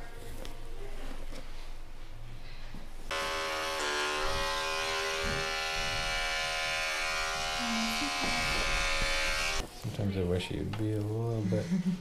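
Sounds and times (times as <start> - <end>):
electric hair clipper buzzing: 3.1 - 9.6.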